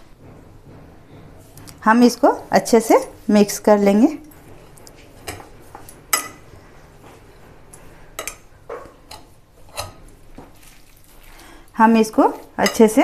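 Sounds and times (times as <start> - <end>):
cutlery clinking against glass bowl: 6.1 - 6.5, 8.2 - 10.0, 12.6 - 13.0.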